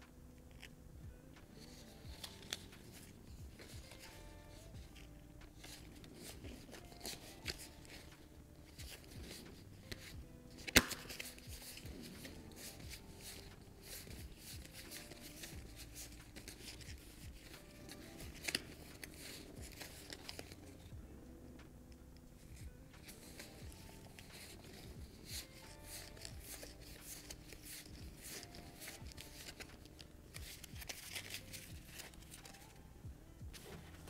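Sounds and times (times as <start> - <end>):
soft background music: 0.0 - 34.0
playing cards sliding and clicking: 0.4 - 0.7, 1.4 - 20.9, 22.2 - 32.8, 33.5 - 34.0.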